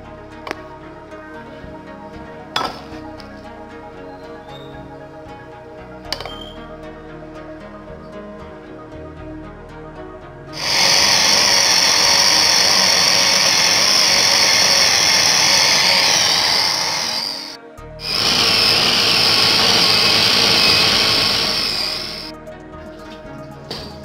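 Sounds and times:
food processor motor grinding: 0:10.6 - 0:22.3.

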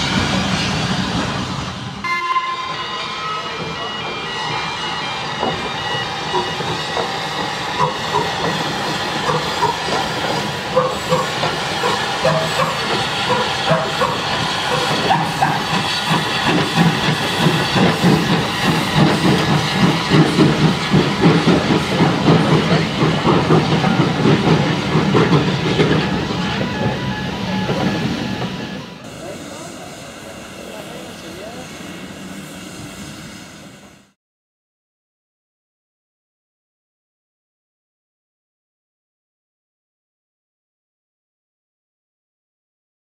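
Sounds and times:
steam hissing: 0:02.8 - 0:34.2
steam locomotive exhaust puffs: 0:03.4 - 0:34.2
crossing warning alarm tones: 0:22.2 - 0:29.7.

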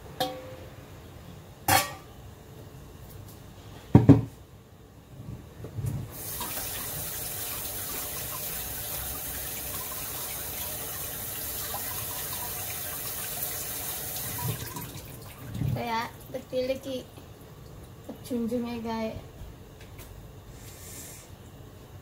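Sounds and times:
water running into sink: 0:06.1 - 0:16.5.

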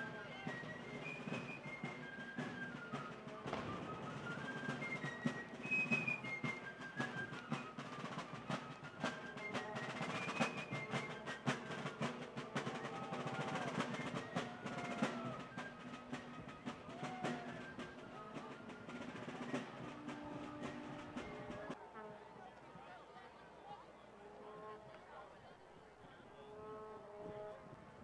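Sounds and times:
field drums beating: 0:00.0 - 0:21.8.

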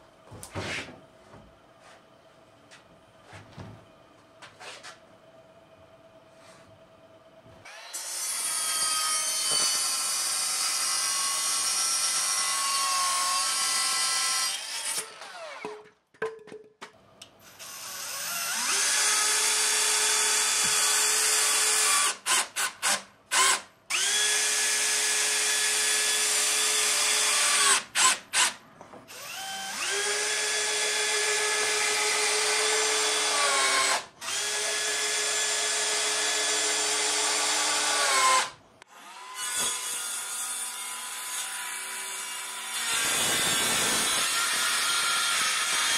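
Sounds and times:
miter saw cutting wood: 0:07.6 - 0:15.7, 0:17.6 - 0:45.9.

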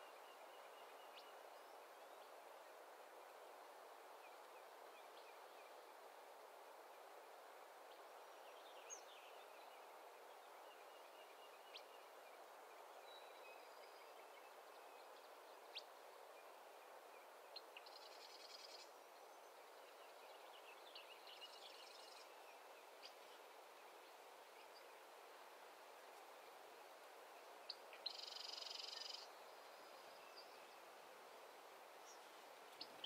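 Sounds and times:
soft steady hiss: 0:00.0 - 0:33.0.

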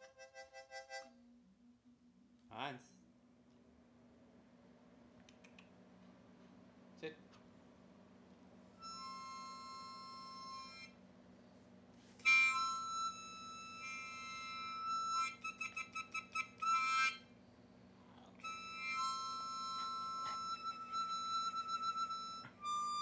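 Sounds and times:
harmonica chords: 0:00.0 - 0:01.2, 0:08.8 - 0:11.0, 0:12.2 - 0:17.4, 0:18.4 - 0:23.0.

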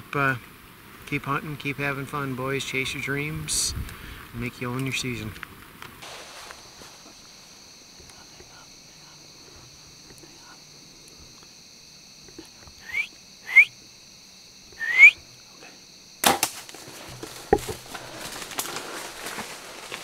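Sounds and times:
high insect drone: 0:00.0 - 0:20.0
rustling: 0:04.8 - 0:08.5, 0:16.3 - 0:20.0
bow string crack: 0:16.2 - 0:19.6.

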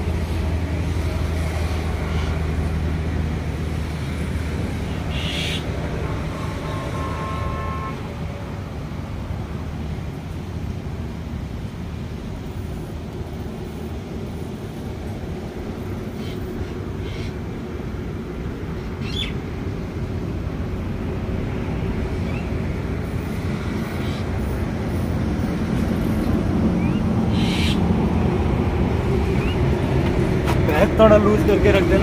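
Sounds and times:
low outdoor rumble: 0:00.0 - 0:32.0
bird chirps and calls: 0:05.1 - 0:05.6, 0:19.0 - 0:19.4, 0:26.8 - 0:27.8.

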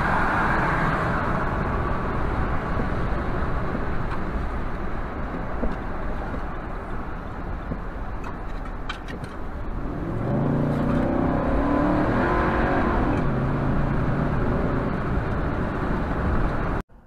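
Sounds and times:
road and tyre noise: 0:00.0 - 0:17.0
car engine accelerating: 0:09.3 - 0:16.8.

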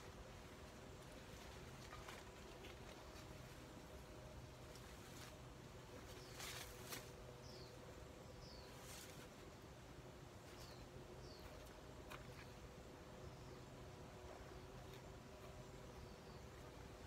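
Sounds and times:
leaves and branches rustling: 0:00.0 - 0:13.5.

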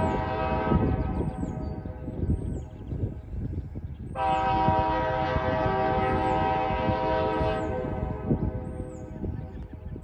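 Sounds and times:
locomotive air horn blast: 0:00.0 - 0:01.2, 0:04.2 - 0:08.3
low rumble of train: 0:00.0 - 0:10.0.

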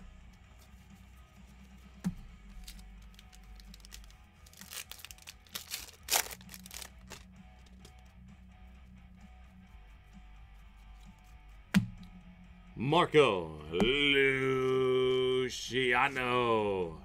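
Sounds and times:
faint background music: 0:00.0 - 0:17.0
card packaging crinkling: 0:02.5 - 0:07.9.

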